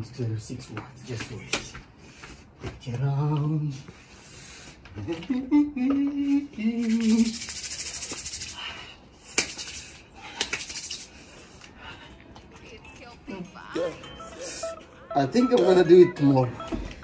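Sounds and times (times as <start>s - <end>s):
wet hands rubbing together: 6.7s - 11.7s.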